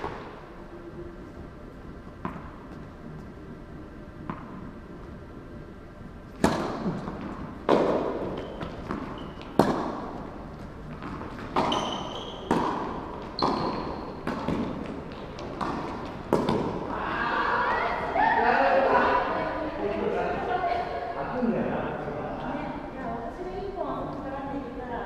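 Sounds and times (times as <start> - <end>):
shoe squeaks on court: 8.4 - 9.6, 11.6 - 12.6, 13.3 - 14.2.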